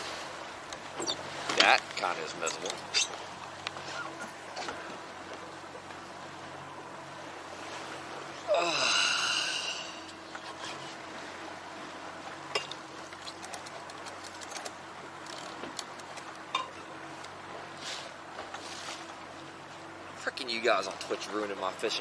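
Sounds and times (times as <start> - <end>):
water noise: 0.0 - 22.0
wind: 0.0 - 22.0
man sighing: 8.5 - 10.1.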